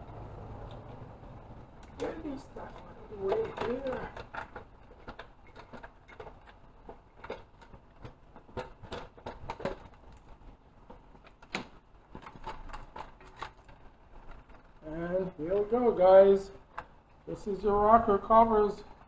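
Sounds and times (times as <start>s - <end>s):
light clicks and knocks of handling: 1.8s - 15.8s.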